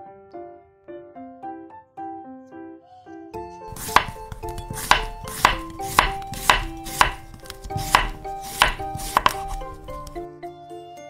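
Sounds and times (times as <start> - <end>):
knife chopping on cutting board: 3.7 - 10.2.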